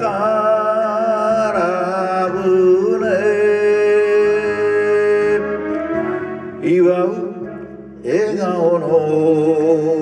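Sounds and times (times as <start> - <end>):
backing track: 0.0 - 10.0
man singing: 0.0 - 10.0.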